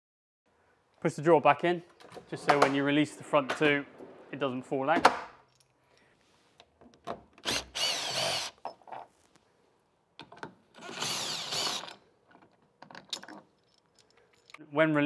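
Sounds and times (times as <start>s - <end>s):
power drill-driver running: 7.4s - 8.6s, 10.8s - 12.0s.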